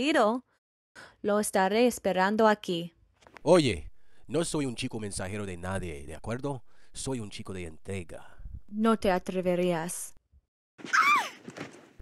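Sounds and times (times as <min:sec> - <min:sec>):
woman's startled yelp: 0:10.9 - 0:11.4.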